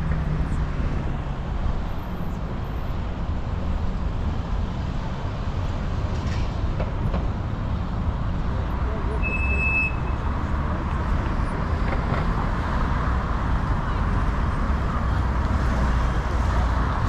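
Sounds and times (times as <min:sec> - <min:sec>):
road traffic: 0:00.0 - 0:17.0.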